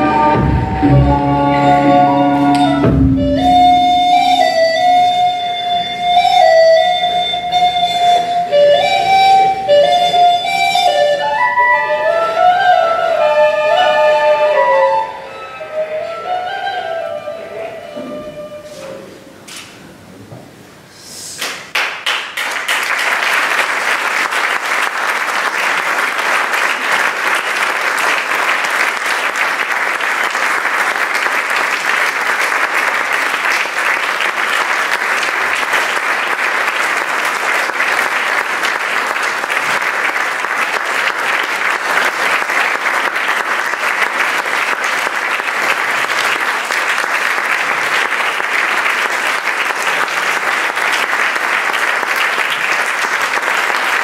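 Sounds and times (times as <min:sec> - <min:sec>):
audience applauding: 0:21.4 - 0:54.0.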